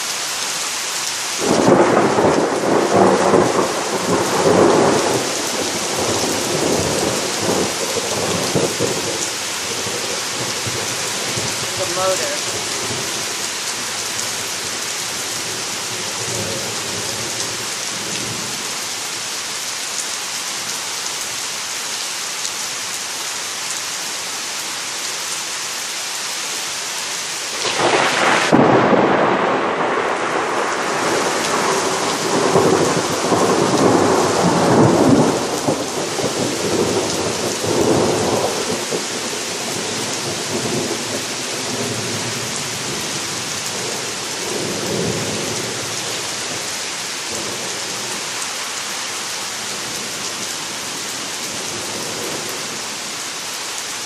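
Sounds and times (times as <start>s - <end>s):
heavy rain falling: 0.0s - 54.0s
thunder clap and rumble: 1.4s - 9.2s, 27.6s - 39.0s.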